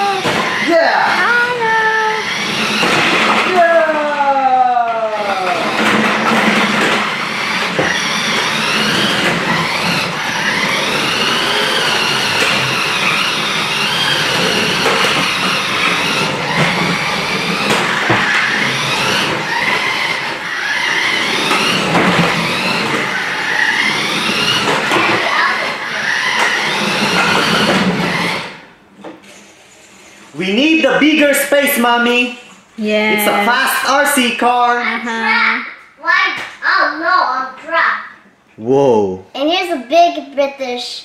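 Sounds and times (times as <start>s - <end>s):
toy car electric motor whining: 0.0s - 32.2s.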